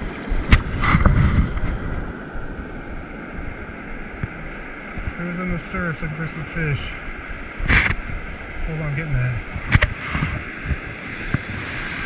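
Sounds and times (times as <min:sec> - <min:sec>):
wind on microphone: 0:00.0 - 0:05.6, 0:07.2 - 0:12.0
ocean surf washing: 0:00.0 - 0:12.0.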